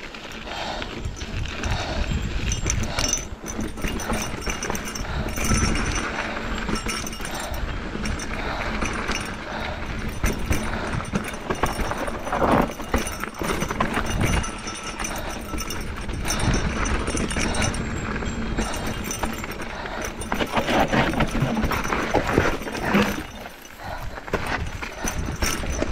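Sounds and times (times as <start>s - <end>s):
mountain bike rattling: 0.0s - 25.9s
wind rushing over microphone: 0.0s - 25.9s.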